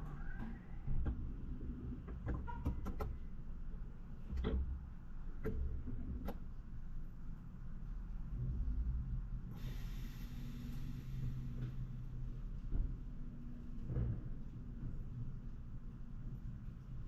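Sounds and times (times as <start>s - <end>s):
sharp clicks and knocks: 0.4s - 3.2s.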